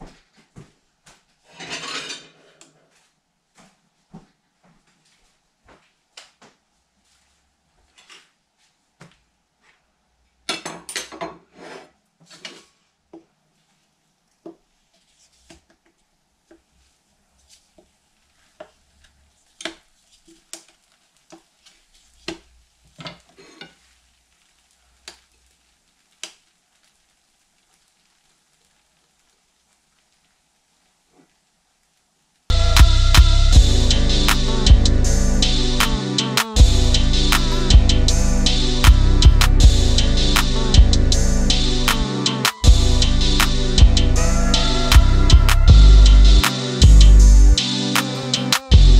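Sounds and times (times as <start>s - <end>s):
plates clattering: 1.5s - 2.6s
spatula taps and scrapes: 19.5s - 21.5s, 22.2s - 23.9s.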